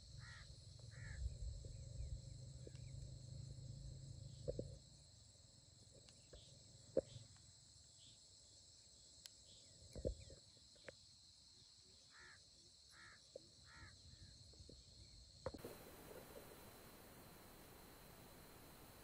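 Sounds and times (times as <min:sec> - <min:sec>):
insects chirping: 0:00.0 - 0:19.0
short animal calls: 0:00.2 - 0:01.2.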